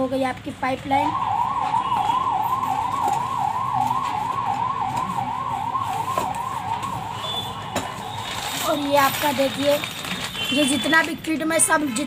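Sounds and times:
electronic siren tone: 0.9s - 8.9s.

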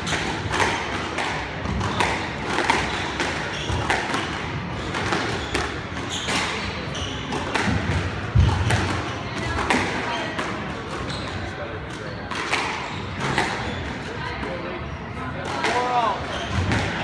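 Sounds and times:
squash ball thuds: 7.3s - 10.6s.

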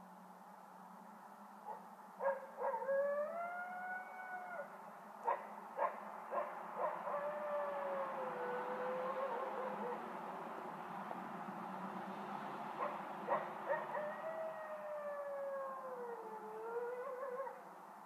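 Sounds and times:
coyote howling and yipping: 1.7s - 10.1s, 12.8s - 17.7s.

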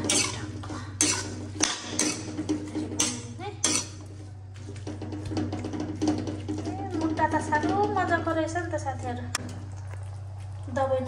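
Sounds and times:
spoon scraping a wok: 0.0s - 4.2s.

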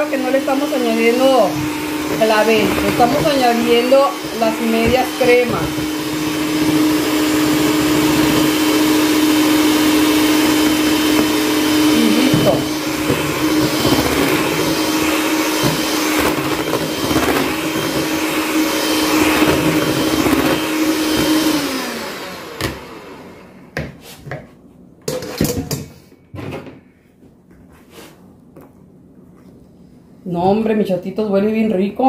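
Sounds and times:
electric hand mixer running: 0.0s - 23.8s.

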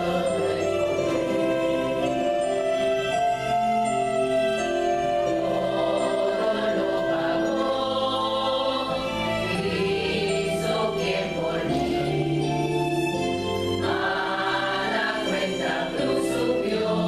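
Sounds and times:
women's choir singing a hymn: 0.0s - 2.3s, 5.2s - 12.6s, 13.8s - 17.0s
sustained accompaniment chords: 0.0s - 17.0s.

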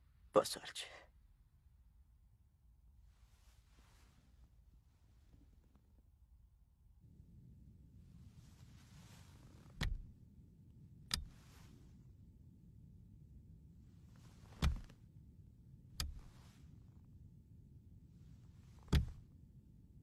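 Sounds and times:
soft hiss: 3.0s - 5.9s, 7.8s - 10.3s, 11.0s - 12.2s, 13.7s - 15.1s, 16.0s - 17.2s
low rumble: 3.0s - 20.0s.

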